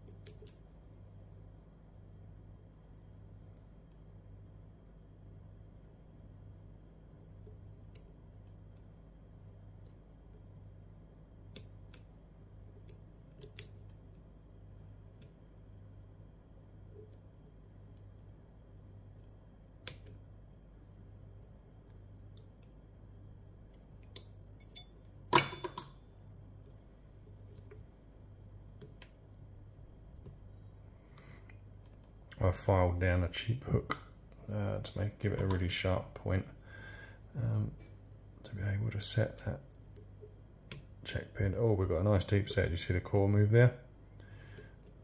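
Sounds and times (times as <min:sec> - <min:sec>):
lock pick metallic clicks: 0:00.0 - 0:00.8, 0:12.8 - 0:13.9, 0:19.2 - 0:20.2, 0:23.7 - 0:25.1.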